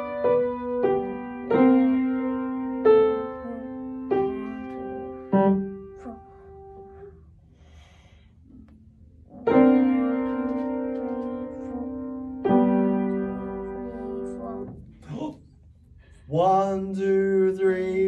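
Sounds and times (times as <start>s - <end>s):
piano chords ringing: 0.0s - 7.2s, 8.5s - 15.0s.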